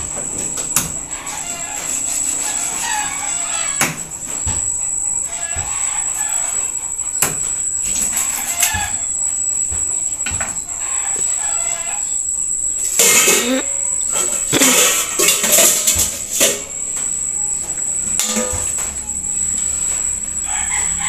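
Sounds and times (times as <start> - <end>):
chickens clucking and crowing: 0.4 - 7.0, 7.9 - 9.7, 20.2 - 21.0.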